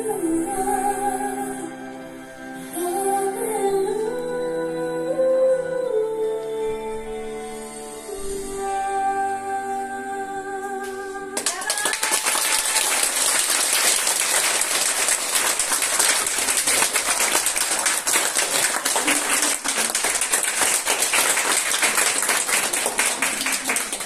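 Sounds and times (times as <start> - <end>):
audience applauding: 11.4 - 24.0.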